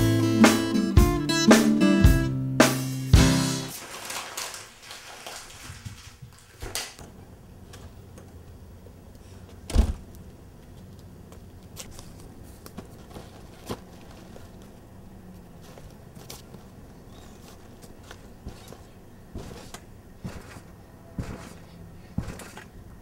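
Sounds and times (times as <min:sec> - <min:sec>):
music chord: 0:00.0 - 0:03.7
knocks and thumps: 0:18.4 - 0:21.6, 0:22.2 - 0:22.7.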